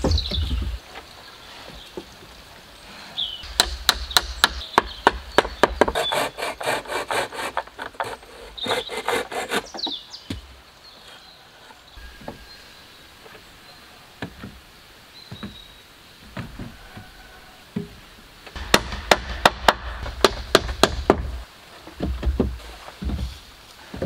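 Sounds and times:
hand saw cutting wood: 5.6s - 10.0s
wood knocks: 15.3s - 15.6s, 16.3s - 23.4s.

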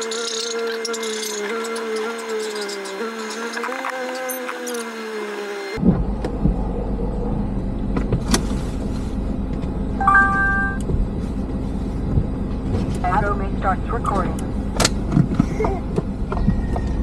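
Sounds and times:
car engine rumble from inside: 5.8s - 17.0s
electronic beep: 10.0s - 10.8s
held musical tones: 10.0s - 10.9s.

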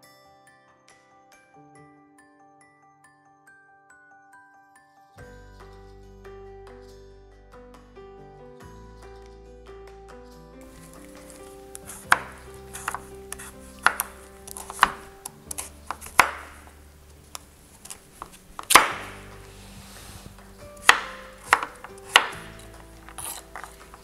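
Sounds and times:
knife cutting through squash: 10.7s - 24.0s
knife knocking on cutting board: 10.8s - 16.7s, 17.9s - 19.3s, 20.8s - 24.0s.

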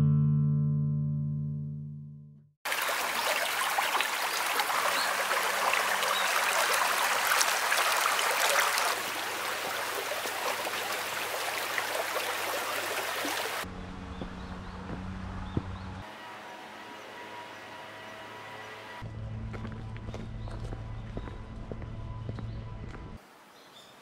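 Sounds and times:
stream water rushing: 2.7s - 13.7s.

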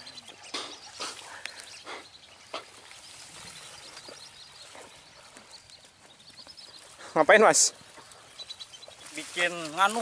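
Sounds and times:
distant bird calls: 0.0s - 10.0s.

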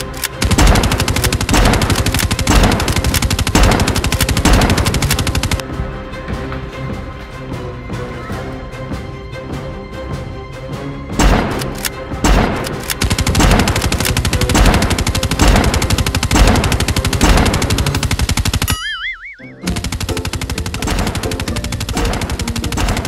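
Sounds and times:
rapid automatic gunfire: 0.4s - 5.6s, 12.3s - 18.7s, 19.7s - 23.0s
short warbling tone: 18.7s - 19.6s.

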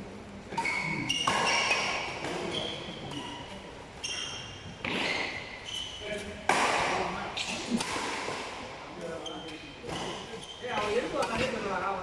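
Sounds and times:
sneakers squeaking on court: 0.6s - 6.3s, 9.2s - 11.5s
rackets striking shuttlecock: 6.2s - 8.6s, 9.9s - 11.5s.

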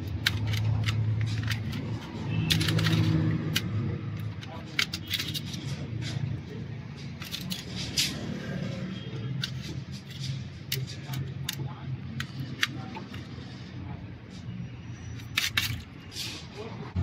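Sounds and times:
metallic clicks of small parts: 0.0s - 6.4s, 7.0s - 8.4s, 9.3s - 13.6s, 15.1s - 16.4s.

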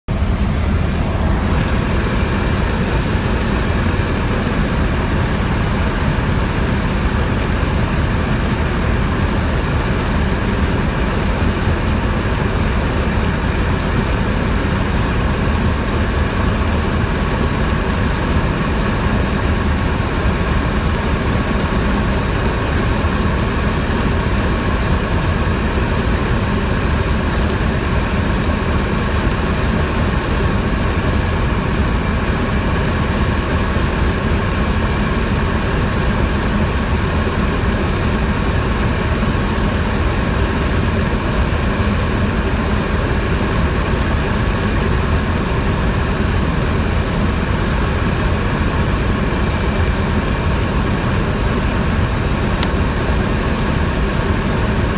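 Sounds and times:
airflow noise: 0.1s - 8.6s
light aircraft engine droning: 0.1s - 54.9s.

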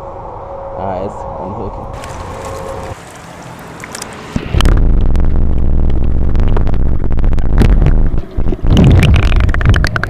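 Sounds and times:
handling noise: 2.0s - 4.5s
underwater clicks: 2.8s - 4.1s, 8.5s - 10.0s.

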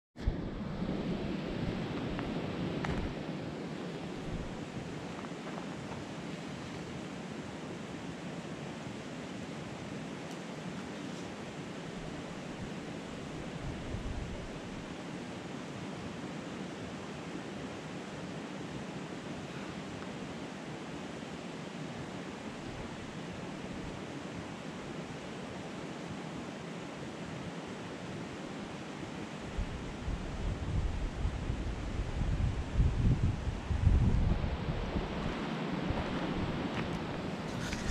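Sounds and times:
wind buffeting microphone: 0.2s - 6.4s, 11.9s - 14.9s, 29.5s - 37.9s
steady rushing background noise: 0.2s - 37.9s.

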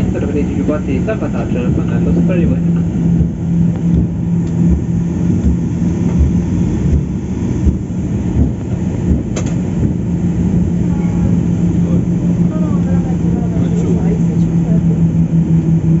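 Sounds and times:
airplane cabin rumble and hum: 0.0s - 16.0s
soft low thumps: 1.4s - 16.0s.

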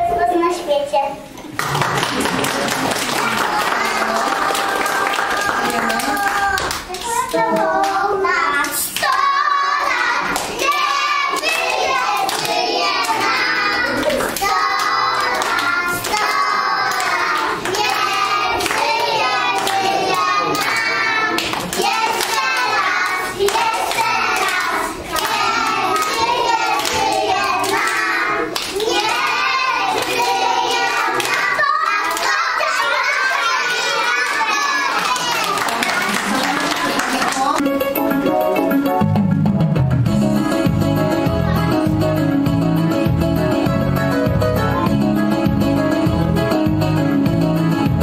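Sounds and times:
hand claps: 1.5s - 8.0s, 10.3s - 32.8s, 34.1s - 37.7s
children singing: 2.9s - 36.2s.

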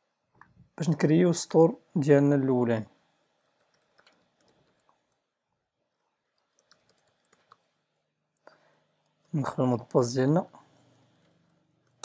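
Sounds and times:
faint keyboard typing: 3.3s - 12.0s.

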